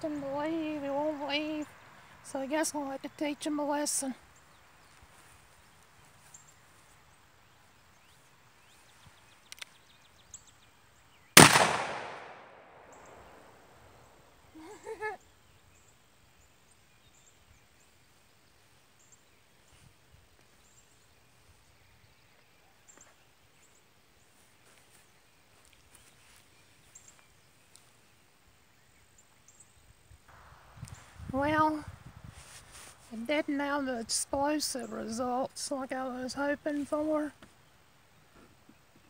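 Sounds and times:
revolver shot with echo: 11.4 - 13.6.

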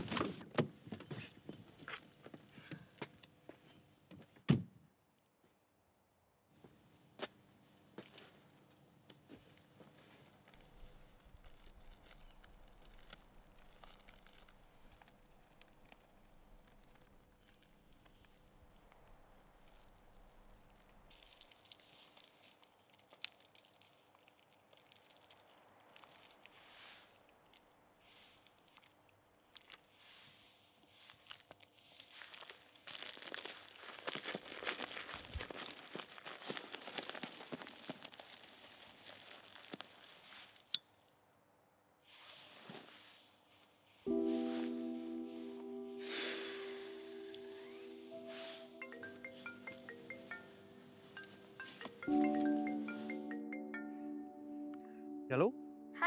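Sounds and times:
paper and plastic packet crinkling: 10.4 - 26.6, 30.8 - 40.7, 48.4 - 53.3.

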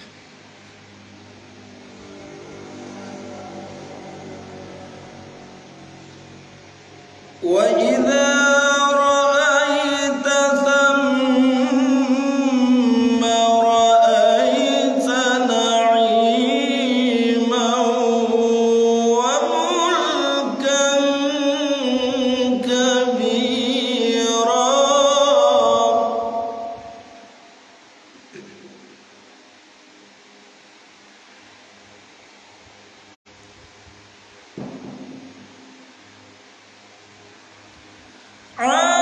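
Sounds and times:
man reciting in melodic chant: 7.4 - 27.3, 38.6 - 39.0.

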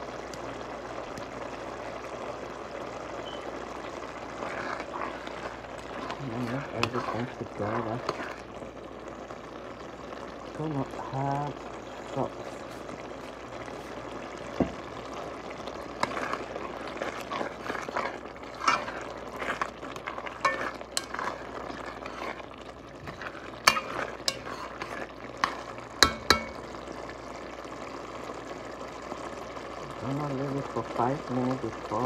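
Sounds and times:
sauce sizzling in oil: 0.0 - 32.0
spoon scraping a pot: 4.3 - 8.4, 15.9 - 26.7
spoon clinking against pot: 26.0 - 26.6.

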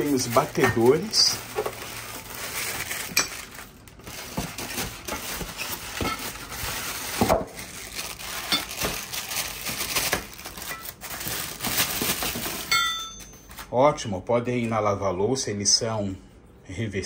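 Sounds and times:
packaging rustling: 0.0 - 12.8, 13.4 - 13.8
metal beaters clinking and knocking: 12.7 - 13.6.

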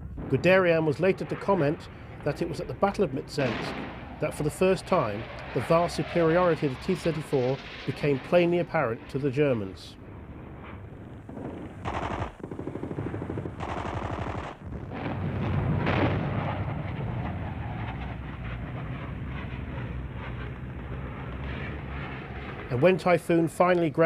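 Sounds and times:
low rumble of battle: 0.0 - 24.0
machine-gun fire: 11.2 - 15.2.

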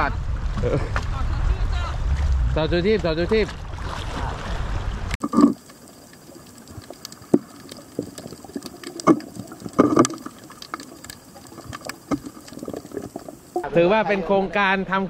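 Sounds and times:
muffled underwater hush: 4.0 - 13.7
underwater clicks: 5.2 - 13.6
bubbling gurgles: 5.2 - 13.7.

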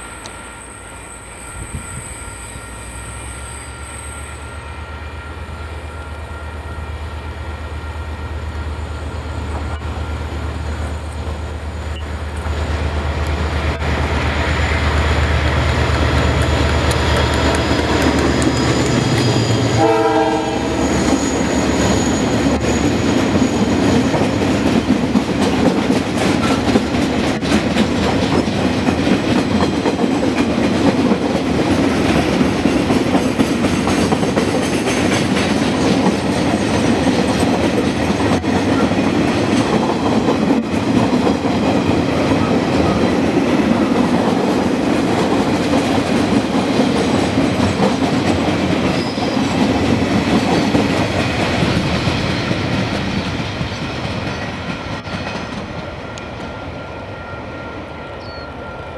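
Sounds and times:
train wheels rumbling on rails: 0.0 - 58.9
wheels clacking over rail joints: 9.1 - 20.2, 21.0 - 56.6.

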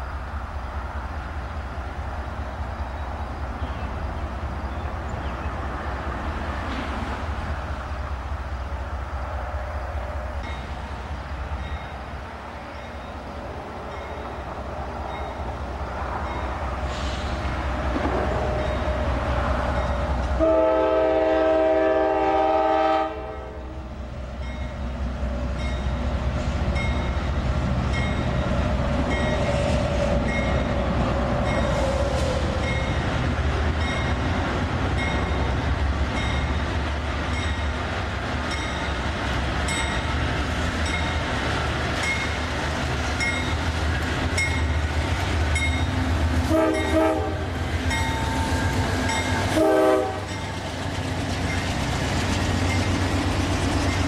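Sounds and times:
train engine and wheels on rail: 0.0 - 54.0
locomotive air horn: 20.4 - 23.8, 46.5 - 47.5, 49.4 - 50.4.

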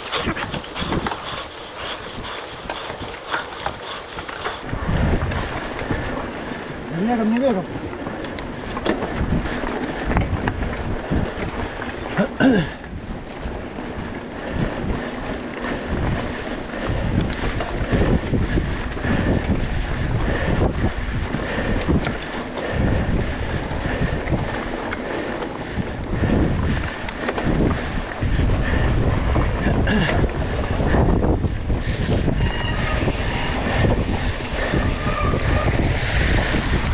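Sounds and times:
bike knocks and rattles: 0.0 - 6.3, 7.4 - 15.0
bike tyres rolling over dirt: 0.0 - 36.9
wind buffeting the microphone: 0.0 - 36.9.

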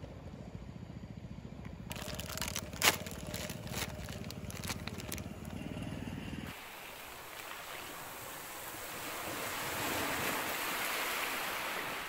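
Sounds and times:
crunching handling noise: 1.9 - 5.6
sharp cracks: 1.9 - 5.6
low rumble: 1.9 - 6.5.

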